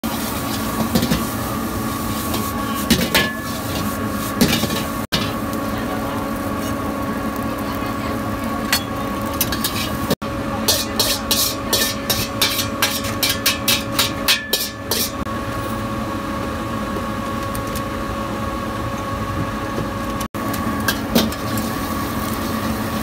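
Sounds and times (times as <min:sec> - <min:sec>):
gas flame and frying: 0:00.0 - 0:23.0
ladle clinking against wok: 0:10.7 - 0:15.2.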